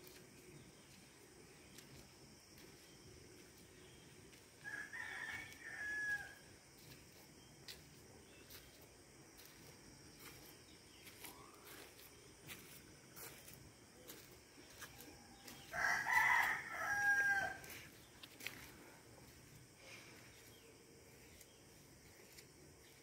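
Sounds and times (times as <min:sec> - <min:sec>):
rooster crowing: 0:04.6 - 0:06.5, 0:15.3 - 0:17.9.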